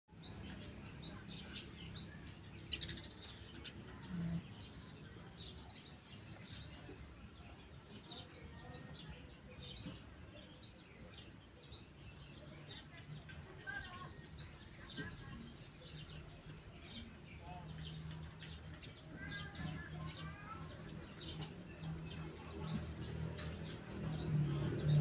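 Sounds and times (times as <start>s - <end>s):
small birds chirping: 0.1s - 25.0s.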